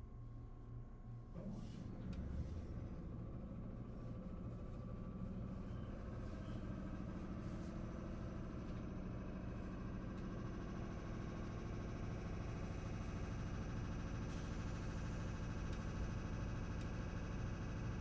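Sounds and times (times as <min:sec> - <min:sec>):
train interior rumble: 0:01.4 - 0:13.5.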